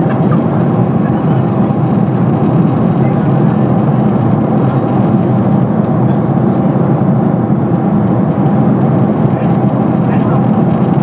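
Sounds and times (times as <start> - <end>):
aircraft cabin engine rumble: 0.0 - 11.0.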